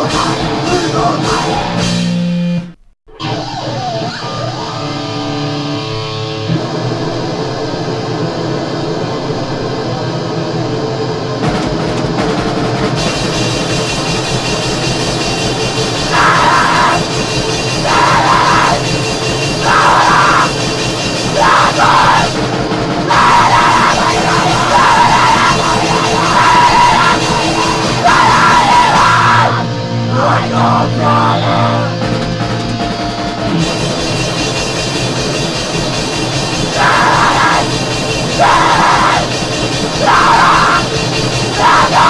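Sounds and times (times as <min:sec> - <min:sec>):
yelled vocals: 0:00.0 - 0:01.9, 0:15.8 - 0:32.1, 0:36.3 - 0:42.0
distorted guitars: 0:00.0 - 0:42.0
fast drum pulse: 0:11.4 - 0:28.7, 0:32.0 - 0:42.0.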